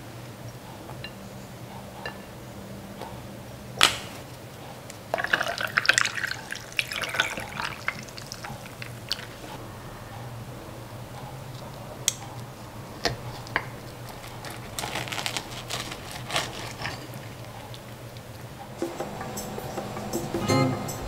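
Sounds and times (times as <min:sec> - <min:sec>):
juice pouring over ice: 0:05.1 - 0:09.4.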